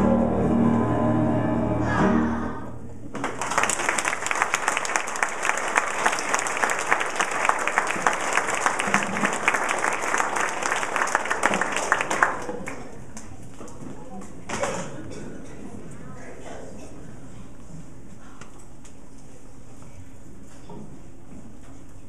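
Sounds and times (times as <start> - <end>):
audience applauding: 3.1 - 13.0.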